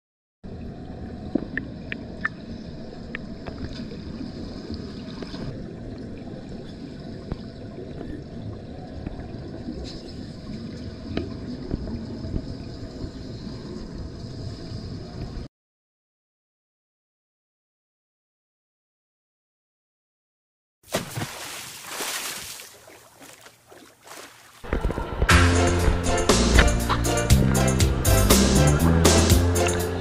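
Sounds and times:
underwater water rumble and bubbling: 0:00.4 - 0:15.5.

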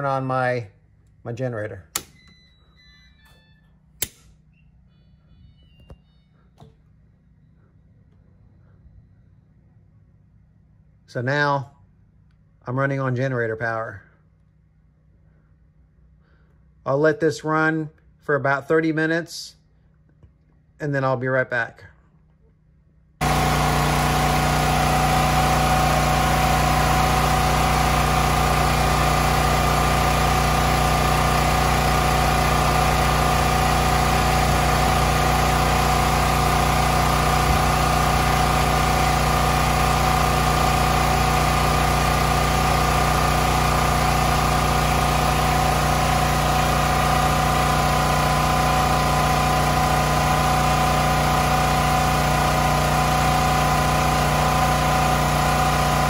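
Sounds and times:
generator engine running: 0:23.2 - 0:56.0.

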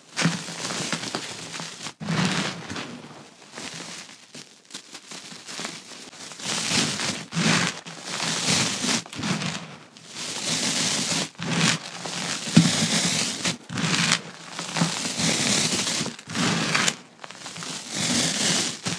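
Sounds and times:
hands crunching chalk: 0:00.1 - 0:18.9.

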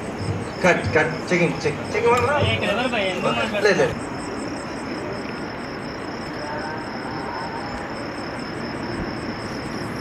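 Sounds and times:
faint high-pitched pulse: 0:00.0 - 0:10.0
steady background rumble: 0:00.0 - 0:10.0.

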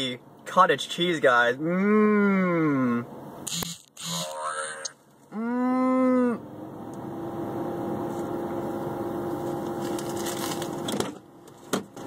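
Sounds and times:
motor humming: 0:03.5 - 0:04.6.

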